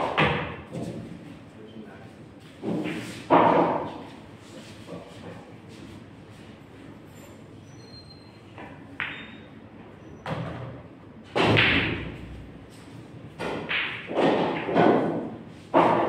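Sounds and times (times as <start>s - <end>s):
cue striking pool balls: 2.6s - 4.1s, 11.3s - 12.3s, 13.3s - 16.0s.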